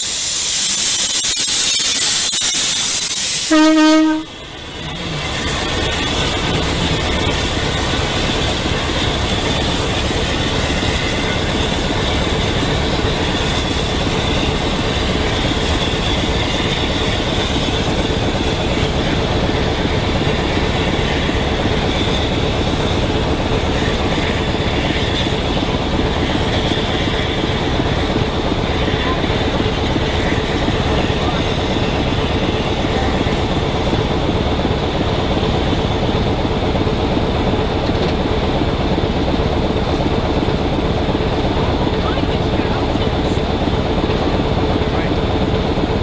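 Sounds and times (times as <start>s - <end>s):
high hiss: 0.0s - 18.2s
low locomotive rumble: 2.1s - 46.0s.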